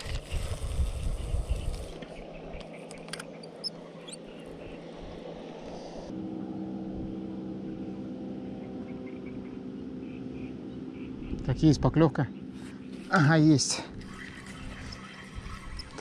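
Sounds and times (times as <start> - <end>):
distant engine droning: 0.0 - 16.0
bird chirps: 1.1 - 4.8.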